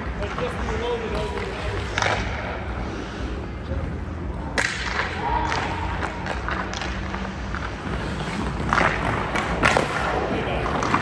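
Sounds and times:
skate blades scraping ice: 0:04.9 - 0:11.0.

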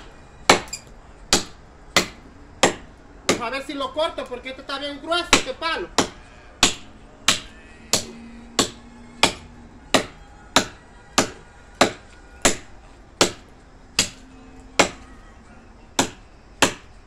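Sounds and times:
machete chopping wood: 0:00.5 - 0:00.7, 0:01.3 - 0:03.5, 0:05.3 - 0:14.2, 0:14.8 - 0:15.0, 0:16.0 - 0:16.9.

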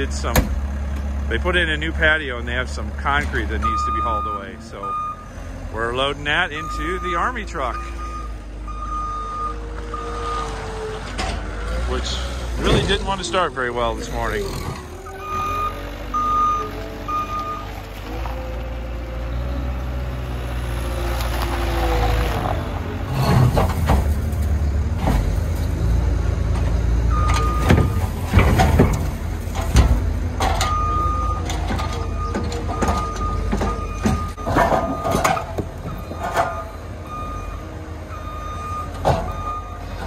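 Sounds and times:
diesel engine under load: 0:00.0 - 0:40.0
reversing alarm beeping: 0:03.7 - 0:05.4, 0:06.4 - 0:10.5, 0:15.0 - 0:17.7, 0:27.1 - 0:28.0, 0:30.6 - 0:39.8
concrete clattering into steel bed: 0:27.3 - 0:36.7.

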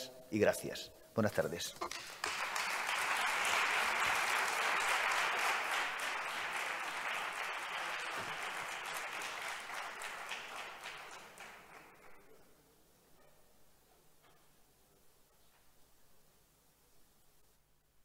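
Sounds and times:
audience applauding: 0:01.8 - 0:12.4.

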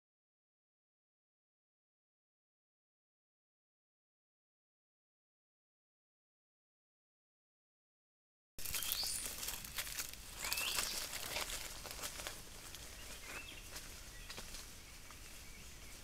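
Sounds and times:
bird chirps: 0:08.6 - 0:09.4, 0:10.4 - 0:11.5, 0:12.7 - 0:16.0
footsteps on dry leaves: 0:08.6 - 0:16.0.

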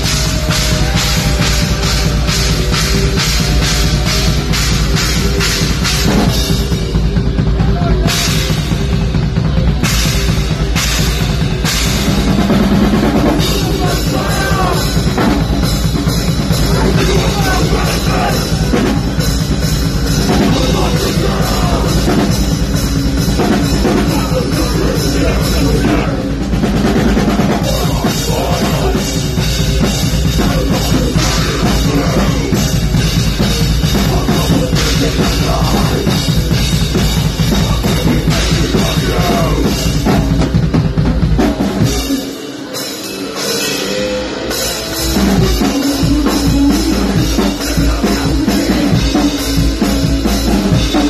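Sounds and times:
heavy bass drum: 0:00.0 - 0:42.4, 0:44.5 - 0:51.0
metal band playing loud: 0:00.0 - 0:51.0.

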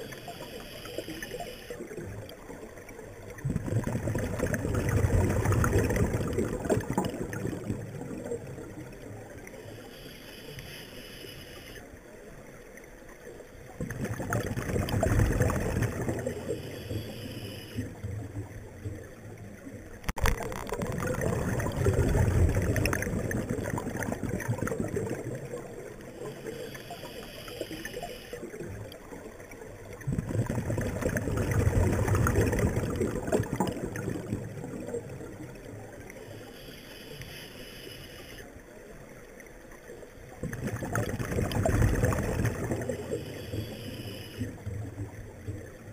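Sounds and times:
exhaled bubbles rushing: 0:01.8 - 0:09.5, 0:13.7 - 0:17.1, 0:20.1 - 0:27.0, 0:27.9 - 0:36.2, 0:40.3 - 0:43.8
diver inhaling through regulator: 0:09.7 - 0:11.8, 0:16.4 - 0:17.9, 0:26.2 - 0:28.4, 0:36.3 - 0:38.5, 0:43.0 - 0:44.6.

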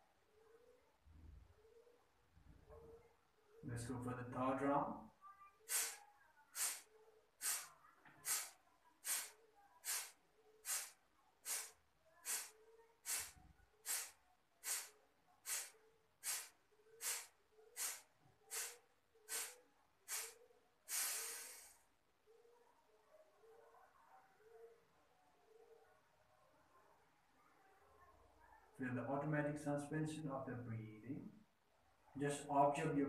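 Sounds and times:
forceful nasal exhalations: 0:05.7 - 0:21.9.

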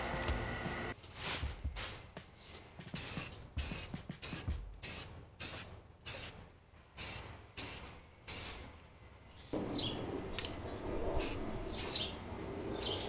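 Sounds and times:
spray can hissing bursts: 0:01.1 - 0:02.2, 0:02.9 - 0:06.4, 0:07.0 - 0:08.7, 0:11.2 - 0:12.1.

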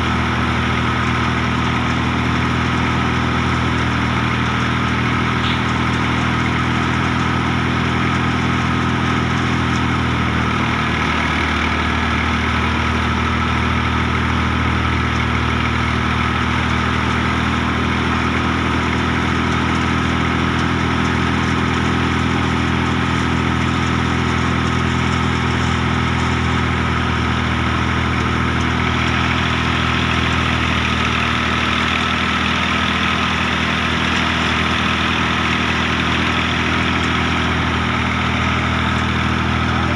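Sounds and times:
thresher running: 0:00.0 - 0:39.9
tractor diesel engine running: 0:00.0 - 0:39.9.

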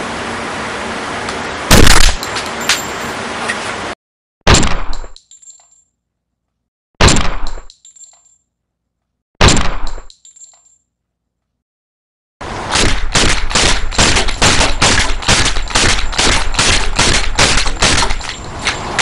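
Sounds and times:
rubber band pistol shots: 0:01.7 - 0:02.2, 0:04.5 - 0:05.2, 0:07.0 - 0:07.7, 0:09.4 - 0:10.1, 0:12.7 - 0:18.3.

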